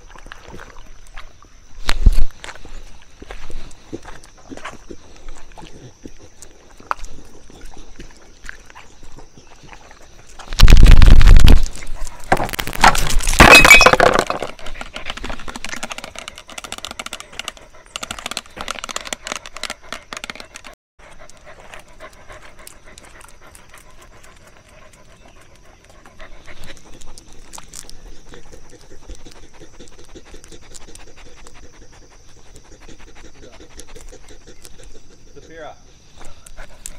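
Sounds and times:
scraping and rattling: 0:10.5 - 0:20.8
dog panting: 0:14.6 - 0:36.9.

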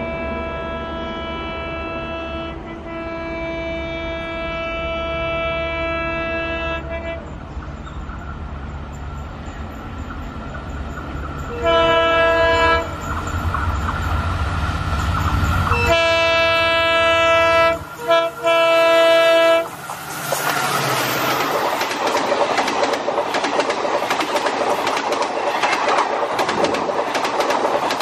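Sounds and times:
locomotive air horn blasts: 0:00.0 - 0:07.5, 0:11.5 - 0:13.0, 0:15.7 - 0:19.8
train engine rumble: 0:00.0 - 0:28.0.

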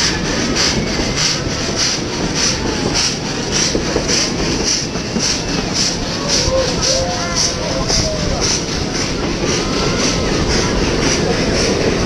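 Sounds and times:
steam locomotive chuffing: 0:00.0 - 0:12.0
train wheels rumbling on track: 0:00.0 - 0:12.0.

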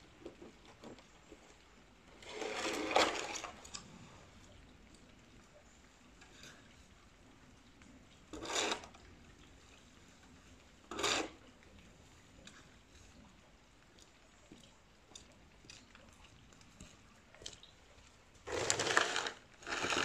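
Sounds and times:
shovel scraping wet ground: 0:02.2 - 0:03.4, 0:08.4 - 0:08.9, 0:10.9 - 0:11.4, 0:18.5 - 0:20.0.

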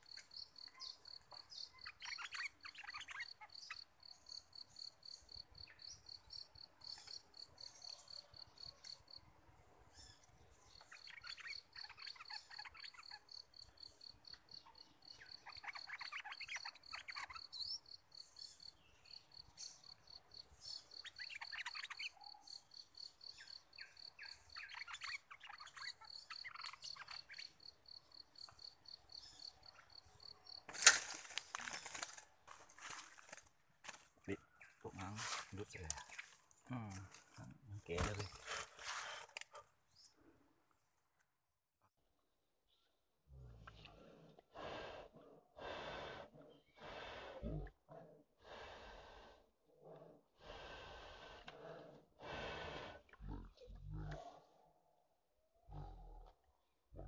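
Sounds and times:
bird song chirpy phrases: 0:00.0 - 0:30.7, 0:34.2 - 0:40.4.

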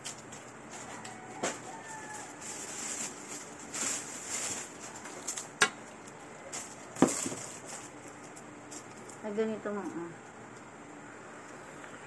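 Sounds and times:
rustling handling noise: 0:00.0 - 0:09.5.

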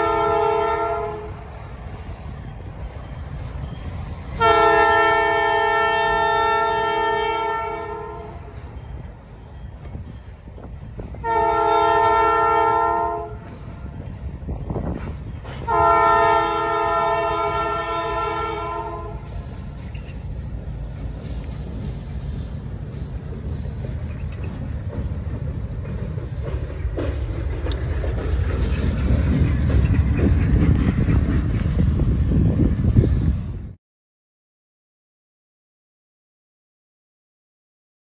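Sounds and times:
locomotive air horn blasts: 0:00.0 - 0:01.6, 0:04.1 - 0:08.6, 0:11.2 - 0:13.5, 0:15.6 - 0:19.6
locomotive rumble: 0:00.0 - 0:33.8.

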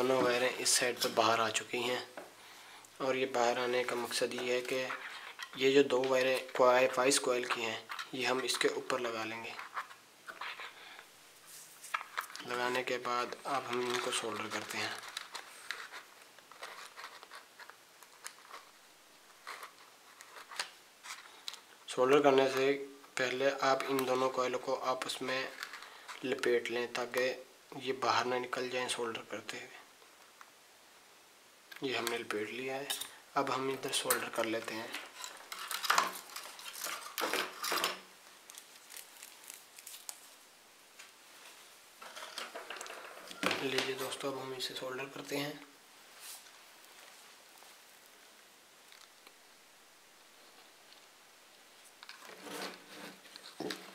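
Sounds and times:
rustling: 0:03.4 - 0:21.7, 0:31.9 - 0:49.4.

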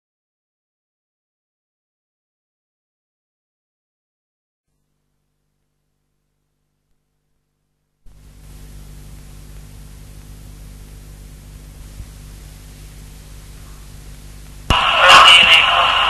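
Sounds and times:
faint low hum: 0:04.7 - 0:16.0
recording static hiss: 0:04.7 - 0:16.0.

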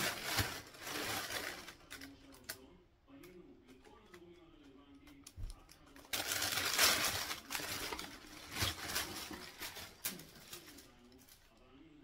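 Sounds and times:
wrapping paper rustling and crackling: 0:00.0 - 0:02.6, 0:05.5 - 0:11.6.

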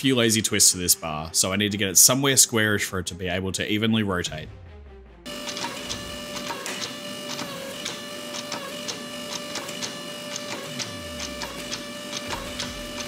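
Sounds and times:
hydraulic press whining: 0:05.3 - 0:13.0.

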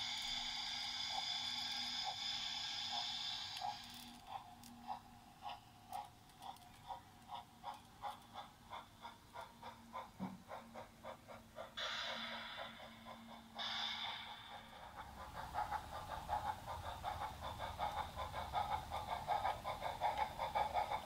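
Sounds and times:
steam hisses: 0:00.0 - 0:05.0, 0:09.6 - 0:21.0
model steam locomotive chuffs: 0:00.0 - 0:21.0.

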